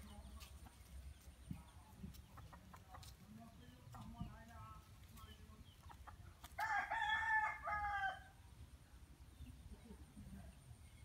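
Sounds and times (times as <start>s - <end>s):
rooster crowing: 6.6s - 8.4s.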